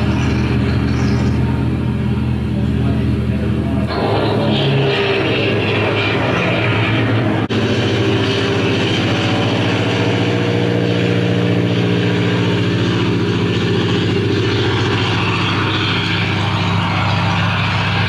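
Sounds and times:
piston aircraft engine droning: 0:00.0 - 0:18.0.

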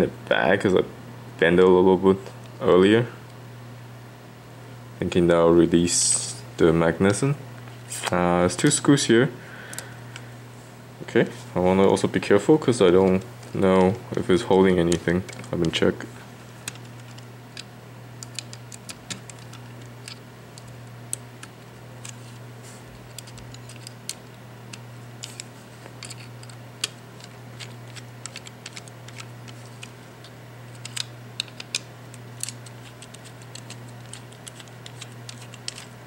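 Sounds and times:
steady low hum: 0:00.0 - 0:36.0
plastic parts handled: 0:16.6 - 0:36.0
screwdriver clicking on tiny screws: 0:16.7 - 0:22.2, 0:23.0 - 0:35.9.

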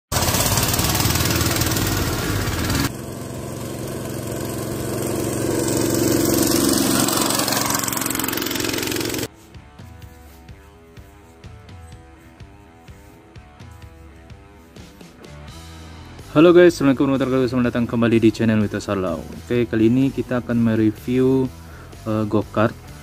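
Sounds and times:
go-kart engine revving: 0:00.1 - 0:09.3
quiet guitar music: 0:09.3 - 0:23.0.

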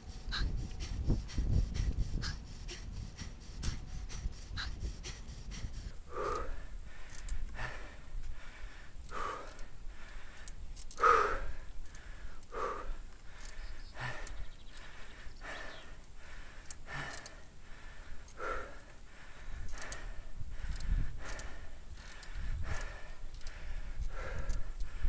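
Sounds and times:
low rumble: 0:00.0 - 0:06.0
person breathing hard: 0:00.0 - 0:25.0.

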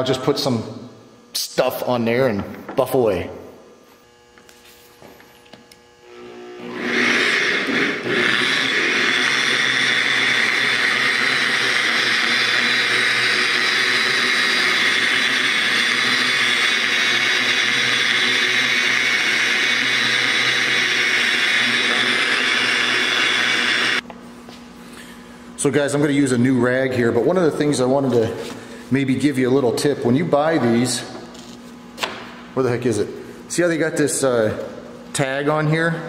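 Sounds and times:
electric polisher whirring: 0:03.8 - 0:24.0.

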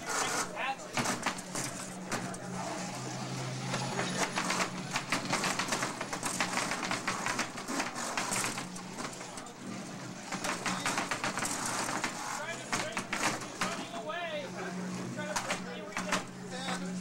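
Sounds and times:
robots clattering and scraping: 0:00.0 - 0:03.0.

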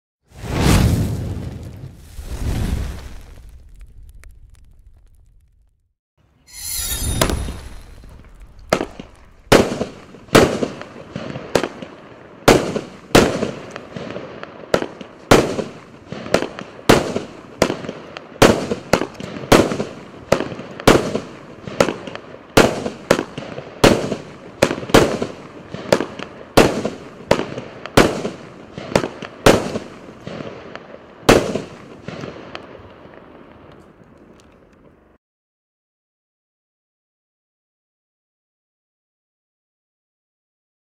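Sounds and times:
firework cake bangs: 0:07.2 - 0:32.7.

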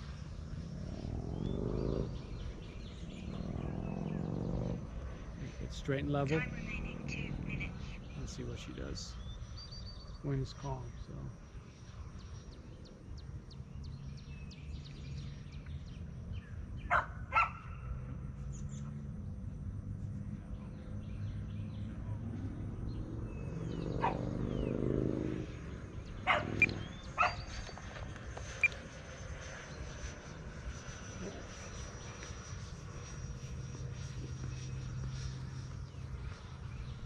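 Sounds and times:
electric fan aircraft whine: 0:00.0 - 0:37.0
small dog yapping: 0:26.3 - 0:27.5.

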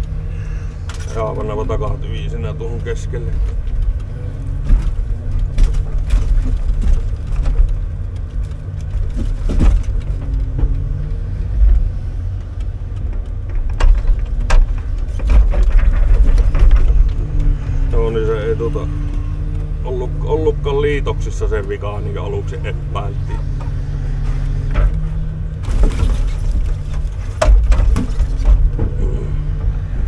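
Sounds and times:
truck engine running steadily: 0:00.0 - 0:30.0
grapple knocking on logs: 0:23.6 - 0:29.7.

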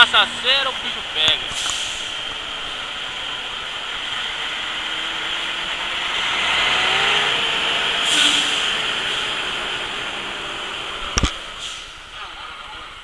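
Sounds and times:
low engine hum: 0:00.0 - 0:13.0
passing truck rush: 0:00.0 - 0:13.0
tyre hiss on wet road: 0:01.4 - 0:03.2, 0:07.9 - 0:10.8, 0:11.4 - 0:12.1.

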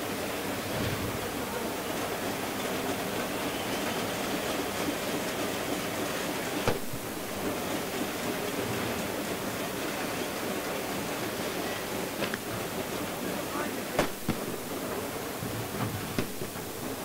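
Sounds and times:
fires burning: 0:00.0 - 0:17.0
sharp bang: 0:00.6 - 0:01.6, 0:06.6 - 0:07.1, 0:14.0 - 0:14.7, 0:16.2 - 0:16.6.

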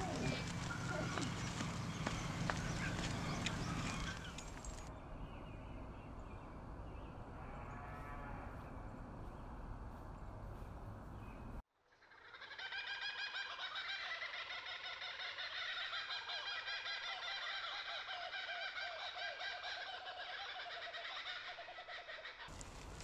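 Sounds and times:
birds chirping and calling: 0:00.0 - 0:07.2.

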